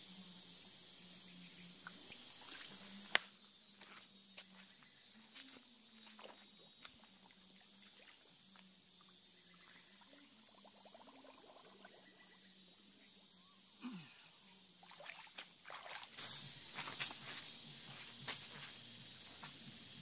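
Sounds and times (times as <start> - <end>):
high insect drone: 0.0 - 20.0
stream water sloshing: 5.9 - 10.2, 14.8 - 17.4
footsteps splashing through water: 15.0 - 18.4.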